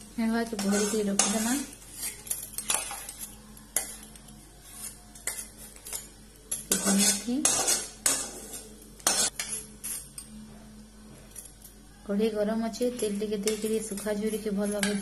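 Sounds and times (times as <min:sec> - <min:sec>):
metal spatula scraping a pan: 0:00.4 - 0:06.0, 0:06.7 - 0:10.2.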